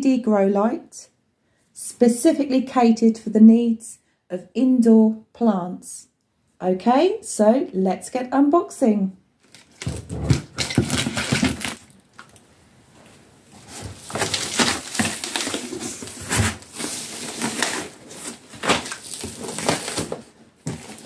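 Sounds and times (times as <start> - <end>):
cardboard scraping and rustling: 9.5 - 11.9, 13.6 - 21.0.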